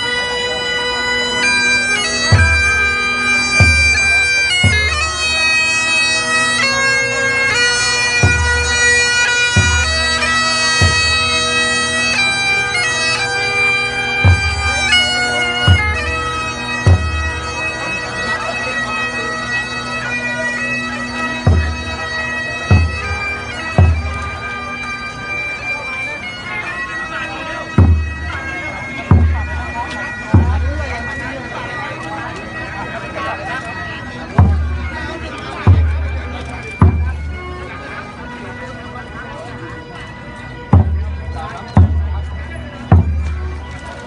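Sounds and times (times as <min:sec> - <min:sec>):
reed pipes melody: 0:00.0 - 0:44.0
deep drum beats: 0:10.8 - 0:11.2, 0:16.8 - 0:17.3, 0:21.5 - 0:21.9, 0:22.7 - 0:24.3, 0:36.8 - 0:37.2, 0:40.8 - 0:42.3, 0:42.9 - 0:43.4.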